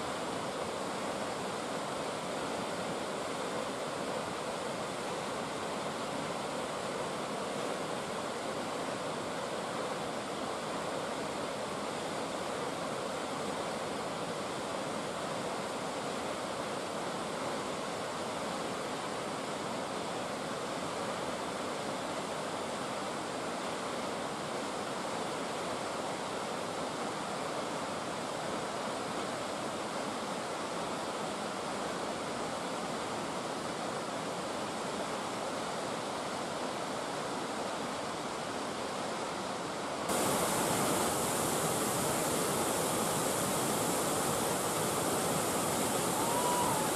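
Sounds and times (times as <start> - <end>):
waterfall rushing: 40.1 - 46.9.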